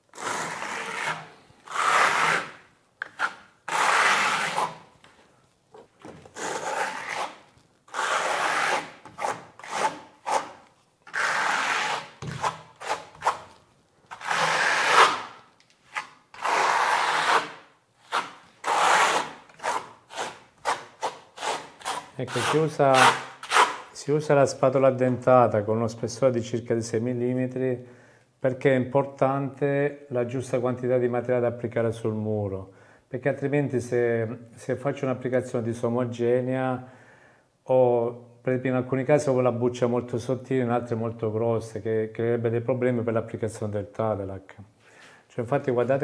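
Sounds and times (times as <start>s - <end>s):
trowel scraping plaster on wall: 0.0s - 4.9s, 6.2s - 23.9s.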